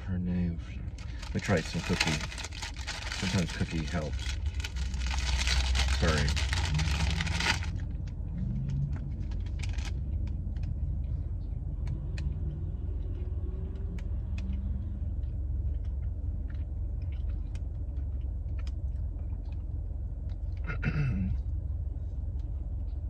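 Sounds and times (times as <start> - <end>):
car idling: 0.0 - 23.0
paper rustling: 1.0 - 7.8
person eating a cookie: 1.0 - 11.1, 11.7 - 20.8.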